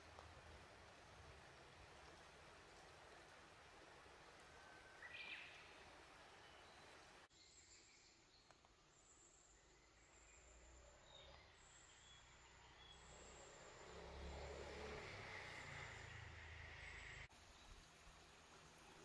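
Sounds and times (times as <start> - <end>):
bird chirp: 4.7 - 14.2.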